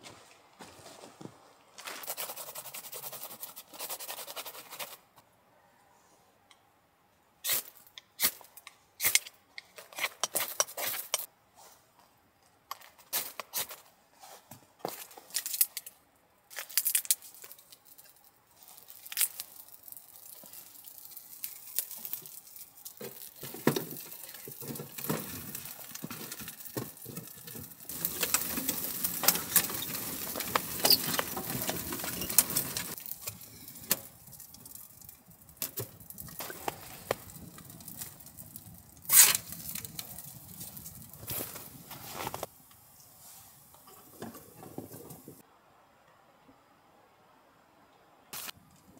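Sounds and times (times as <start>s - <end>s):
kindling rustling: 16.5s - 42.5s
fire crackling: 16.5s - 45.4s.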